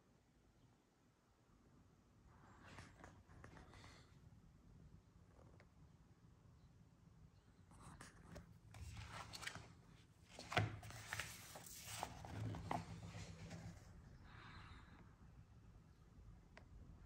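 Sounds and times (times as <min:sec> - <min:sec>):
paper rustling and tapping: 0:10.3 - 0:13.8.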